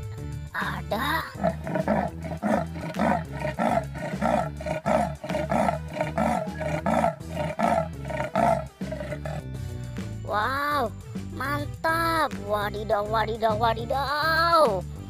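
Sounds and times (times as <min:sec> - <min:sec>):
leopard calling: 0:01.2 - 0:09.5.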